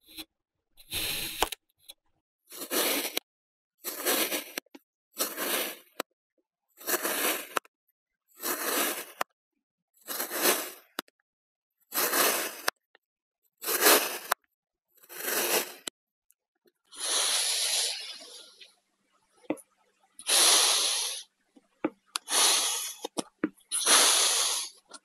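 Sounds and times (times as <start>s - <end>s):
hissy scraping: 17.0s - 18.6s, 22.2s - 24.9s.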